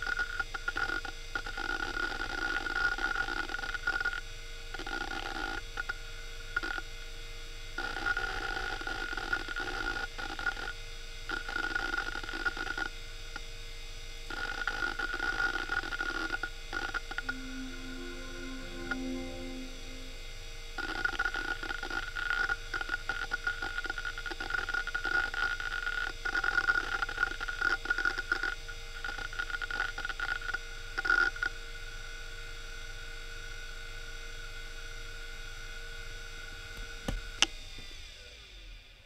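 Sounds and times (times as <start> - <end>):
low tones: 17.2 - 20.8.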